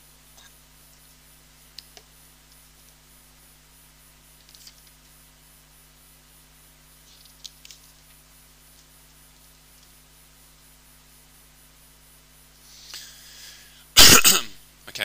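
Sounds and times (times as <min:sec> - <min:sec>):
low electrical hum: 0:00.0 - 0:15.0
faint clicks and rustles: 0:04.3 - 0:05.2, 0:07.0 - 0:10.1.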